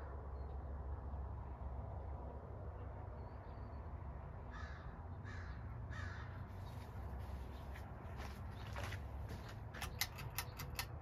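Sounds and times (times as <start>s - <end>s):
bird cawing: 4.4s - 6.9s.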